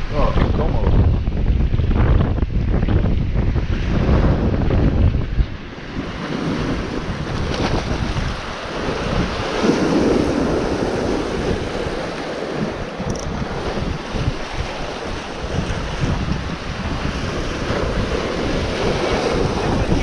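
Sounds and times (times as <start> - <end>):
surf breaking on rocky shore: 0.0 - 20.0
wind buffeting microphone: 0.0 - 20.0.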